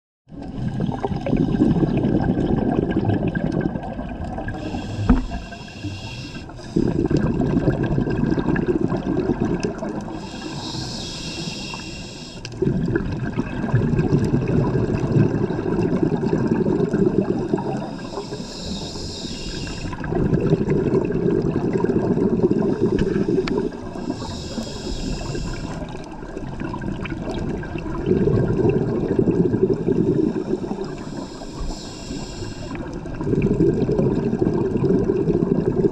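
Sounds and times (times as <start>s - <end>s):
exhaust bubbles gurgling: 0.3s - 10.9s, 12.4s - 35.9s
diver inhaling through regulator: 4.5s - 7.8s, 10.0s - 12.7s, 16.0s - 26.1s, 28.8s - 35.6s.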